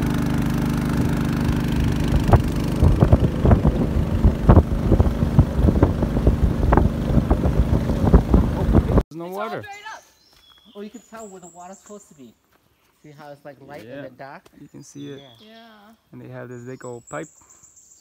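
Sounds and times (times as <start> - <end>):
boat motor running: 0.0 - 9.0
irregular thumps and buffeting: 1.4 - 9.0.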